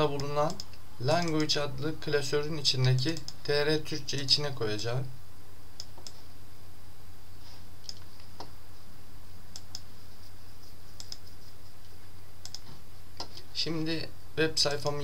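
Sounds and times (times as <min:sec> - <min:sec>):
low electrical hum: 0:00.0 - 0:15.0
computer mouse clicking: 0:00.2 - 0:01.5, 0:02.9 - 0:03.4, 0:05.8 - 0:06.2, 0:07.8 - 0:08.6, 0:09.5 - 0:09.9, 0:11.0 - 0:11.3, 0:12.4 - 0:13.4.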